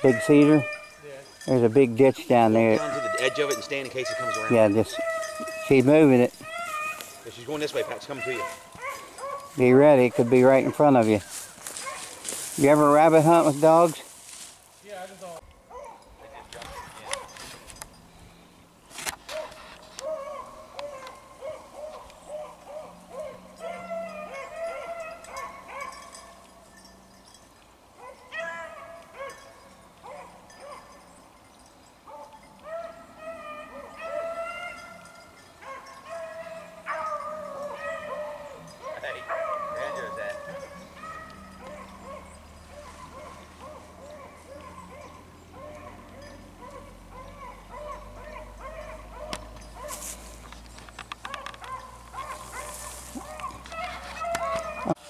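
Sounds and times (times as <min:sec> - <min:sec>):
hounds baying: 0:00.0 - 0:14.4, 0:15.2 - 0:18.5, 0:19.2 - 0:55.0.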